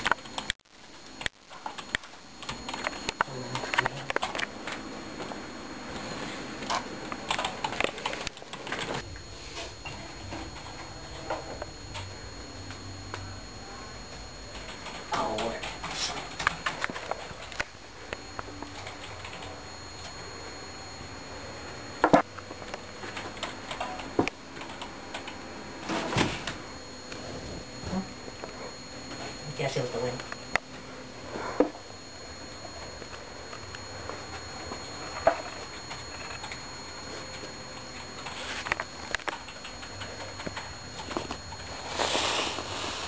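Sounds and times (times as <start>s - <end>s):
typing on keyboard: 7.2s - 8.9s, 23.1s - 25.4s, 39.1s - 41.1s.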